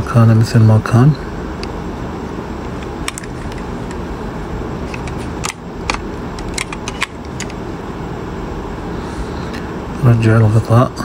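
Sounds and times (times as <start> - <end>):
steady background noise: 0.0 - 11.0
plastic parts clicking: 2.8 - 4.0, 4.9 - 7.6.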